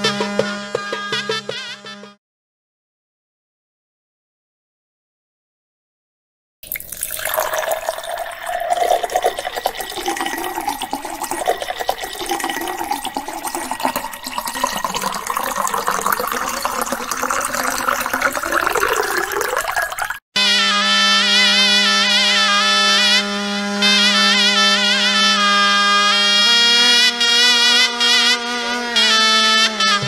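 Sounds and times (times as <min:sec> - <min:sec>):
water pouring into glass bowl: 0:06.6 - 0:20.2.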